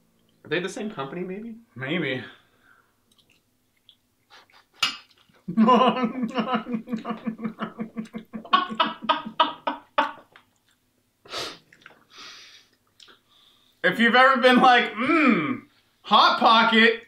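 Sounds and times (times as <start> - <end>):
man laughing: 4.3 - 4.9, 5.5 - 10.4.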